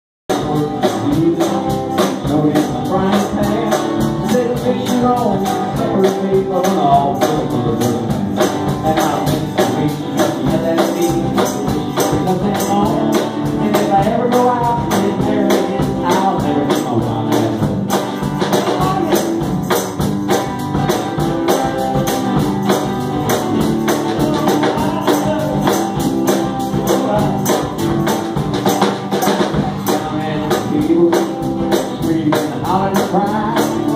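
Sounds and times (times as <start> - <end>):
drum kit cymbal beat: 0.3 - 33.9
guitars: 0.3 - 33.9.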